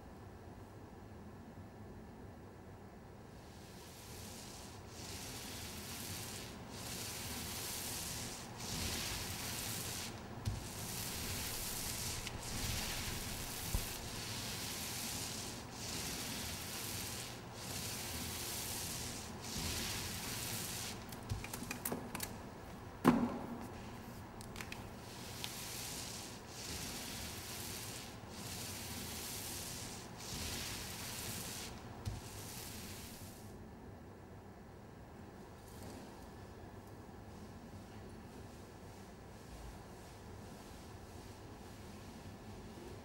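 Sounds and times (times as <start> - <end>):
rubbing scraping strokes: 3.5 - 21.8, 24.6 - 33.4
wooden clunk against bucket: 23.0 - 23.6.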